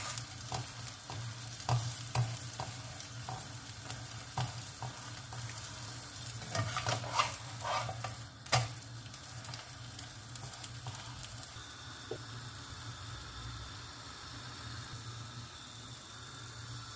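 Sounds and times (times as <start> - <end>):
spatula scraping a pan: 0.0 - 11.4
egg sizzling in a pan: 0.0 - 16.9.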